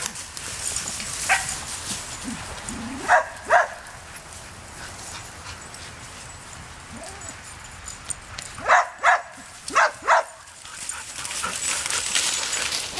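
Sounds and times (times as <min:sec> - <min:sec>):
dog barking: 0:01.3 - 0:01.6, 0:03.0 - 0:03.8, 0:08.6 - 0:10.4.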